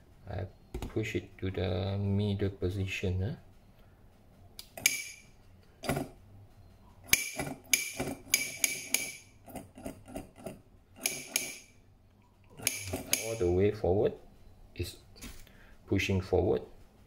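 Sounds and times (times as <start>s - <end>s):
solenoid clacking: 4.6s - 5.2s, 7.1s - 9.2s, 12.5s - 13.5s.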